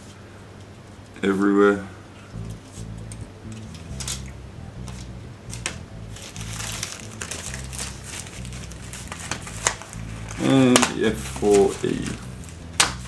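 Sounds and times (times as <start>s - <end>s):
plastic bag crinkling: 4.9s - 12.6s.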